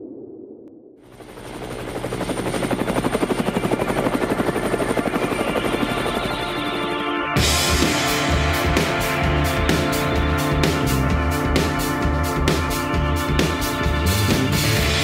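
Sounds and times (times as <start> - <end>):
helicopter rotor chopping: 1.0 - 15.0
music with a beat: 7.4 - 15.0.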